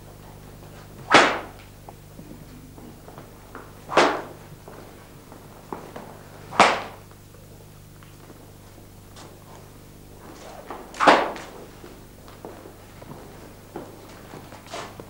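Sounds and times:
whip lashing: 0:01.0 - 0:01.6, 0:03.8 - 0:04.4, 0:06.5 - 0:07.0, 0:10.3 - 0:11.6.

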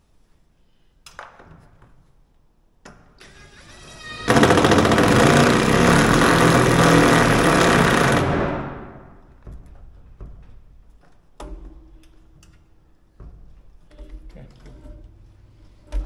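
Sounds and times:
impact driver motor whining: 0:03.7 - 0:08.9
impact driver hammering: 0:04.3 - 0:09.1.

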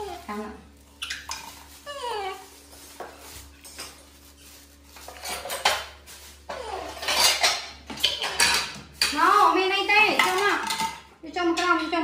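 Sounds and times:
plastic kitchenware clattering: 0:04.9 - 0:09.4, 0:10.0 - 0:12.0.

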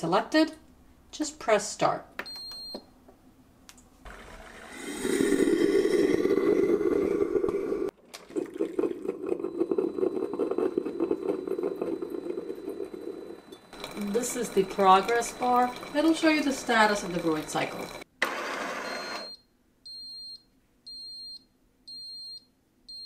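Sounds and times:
coffee maker pump running: 0:04.1 - 0:19.0.

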